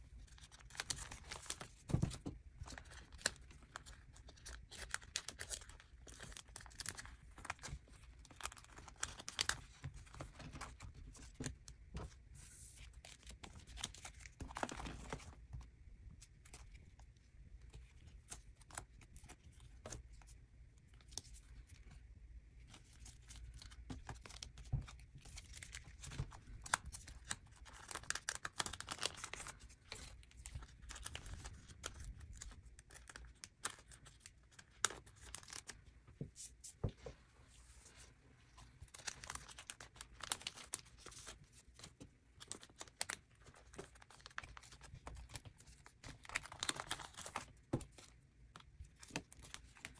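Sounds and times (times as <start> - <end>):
plastic sleeves crinkling: 22.6 - 35.8, 37.8 - 49.9.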